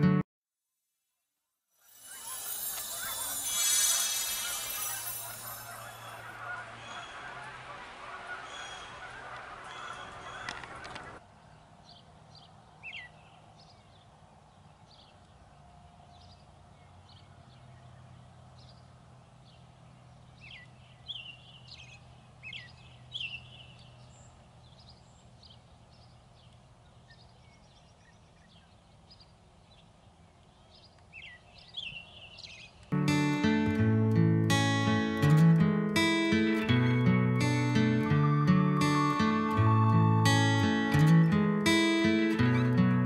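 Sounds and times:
songbirds chirping: 0:02.0 - 0:43.0.

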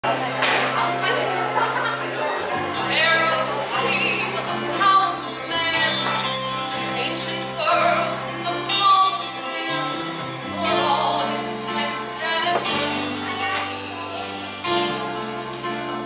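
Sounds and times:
instrumental accompaniment: 0:00.0 - 0:16.0
woman singing: 0:02.8 - 0:16.0.

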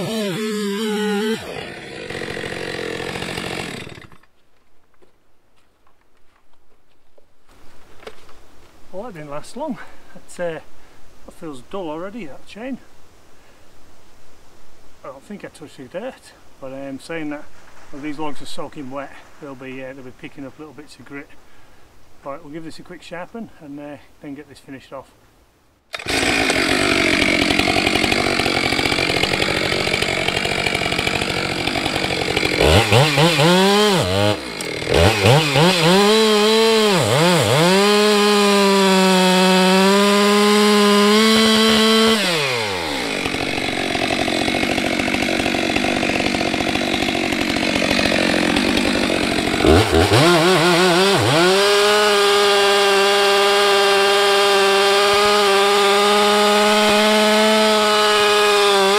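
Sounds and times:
chainsaw cutting logs: 0:00.0 - 0:04.4, 0:25.9 - 0:58.9.

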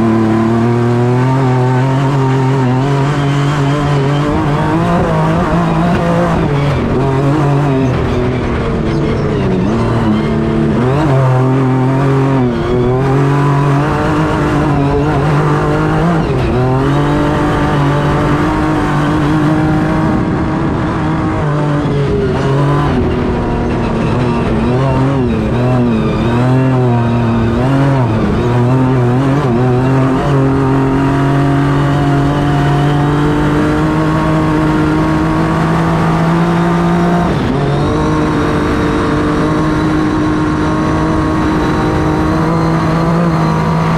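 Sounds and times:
truck engine revving: 0:00.0 - 0:43.9.

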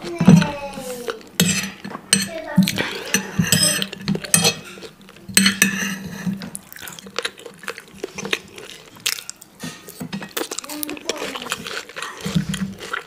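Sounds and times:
knife and fork scraping a plate: 0:01.4 - 0:06.5.

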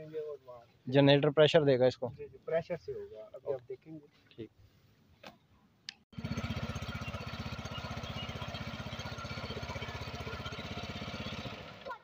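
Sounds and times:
small engine running steadily: 0:06.1 - 0:12.0.

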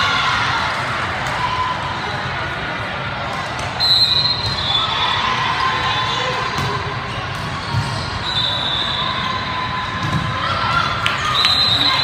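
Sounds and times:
hubbub of players and spectators: 0:00.0 - 0:12.0
high whistle: 0:03.8 - 0:05.0, 0:08.2 - 0:09.3, 0:11.2 - 0:12.0.

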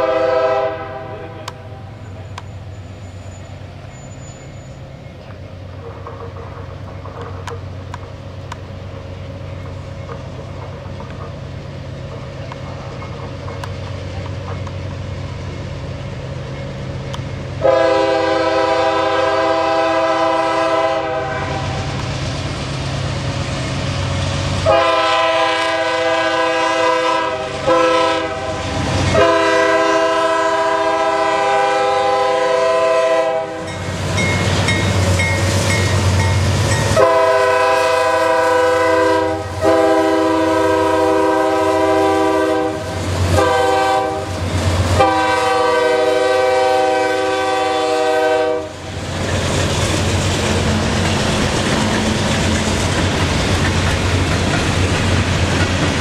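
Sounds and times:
train air horn blasts: 0:00.0 - 0:02.3, 0:17.6 - 0:22.0, 0:24.6 - 0:33.8, 0:36.8 - 0:48.9
diesel locomotive engine rumble: 0:00.0 - 0:56.0.

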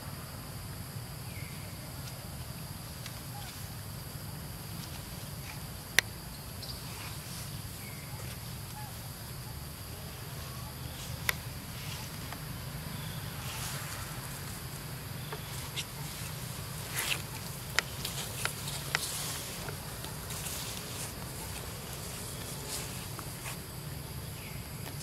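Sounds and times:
insect drone: 0:00.0 - 0:25.0.

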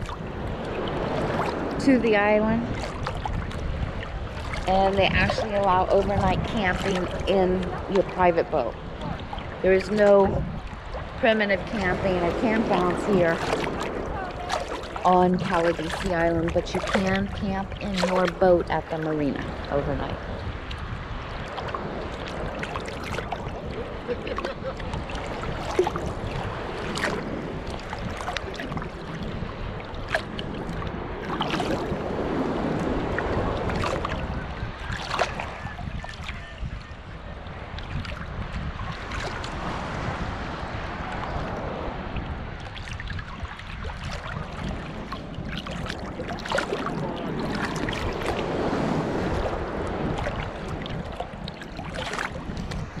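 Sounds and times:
water sloshing and splashing: 0:00.0 - 0:53.0
sharp splash ticks: 0:11.7 - 0:19.7, 0:20.6 - 0:20.9.

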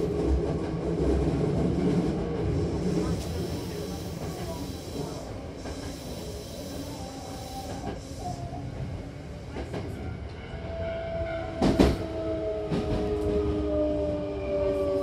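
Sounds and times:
train running rumble: 0:00.0 - 0:10.5.

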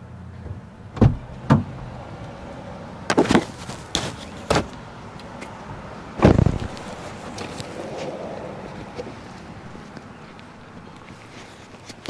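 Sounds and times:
sharp knocks and thumps: 0:00.4 - 0:01.8, 0:03.1 - 0:04.8, 0:06.2 - 0:07.5.

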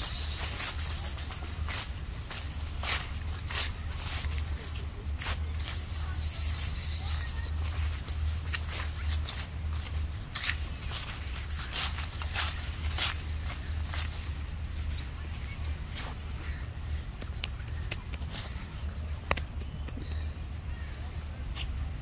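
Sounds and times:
footsteps crunching through dry leaves: 0:00.0 - 0:19.6.

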